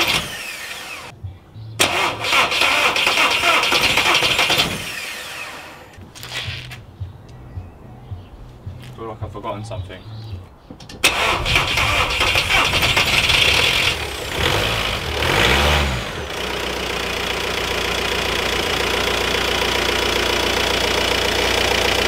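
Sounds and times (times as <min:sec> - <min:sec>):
diesel engine starting and idling: 0:00.0 - 0:01.1, 0:01.8 - 0:06.0, 0:11.0 - 0:22.0.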